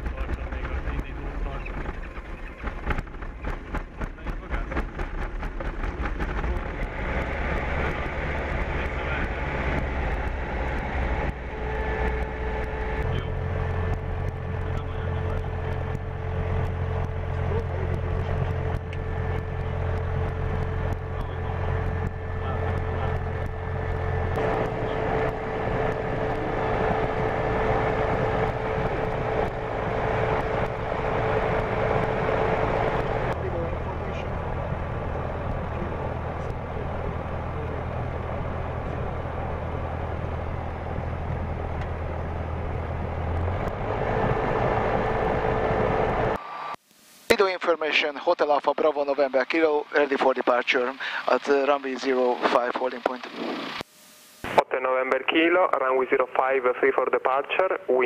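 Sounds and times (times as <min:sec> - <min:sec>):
light aircraft piston engine idling: 0:07.8 - 0:43.5.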